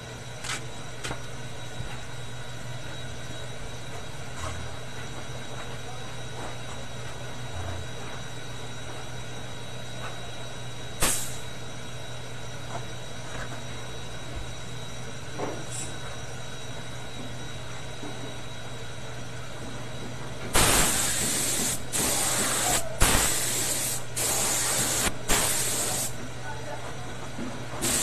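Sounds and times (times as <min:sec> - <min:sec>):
air compressor humming: 0:00.0 - 0:28.0
loud burst of noise: 0:11.0 - 0:11.4, 0:20.5 - 0:26.1.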